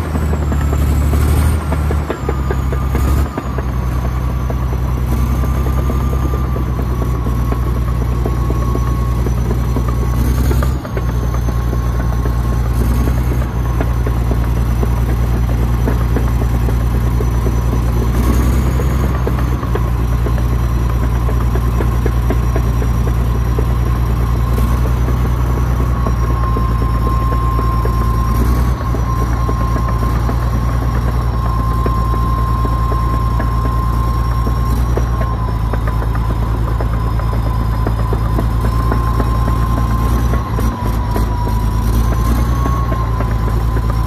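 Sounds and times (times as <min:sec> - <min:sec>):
bulldozer diesel engine droning: 0:00.0 - 0:44.0
whining tone: 0:00.0 - 0:44.0
faint high whistle: 0:02.1 - 0:44.0.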